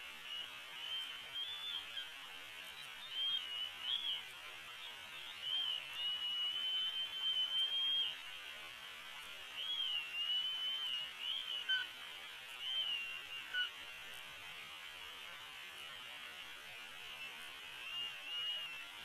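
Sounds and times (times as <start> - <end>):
steady hiss: 0.0 - 19.0
slowed eagle whistling calls: 0.2 - 2.1, 2.7 - 4.2, 5.0 - 8.2, 9.6 - 11.9, 12.6 - 13.7, 17.2 - 18.9.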